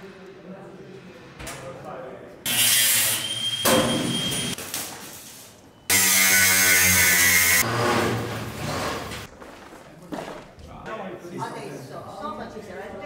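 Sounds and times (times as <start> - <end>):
angle grinder grinding steel: 5.9 - 8.1.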